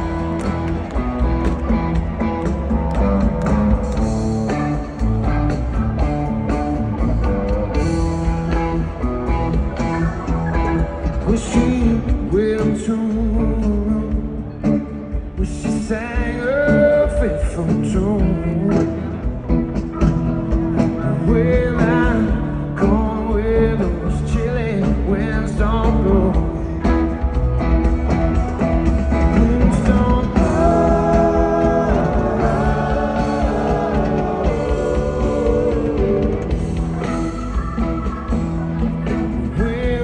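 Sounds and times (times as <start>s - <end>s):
live rock band playing: 0.0s - 40.0s.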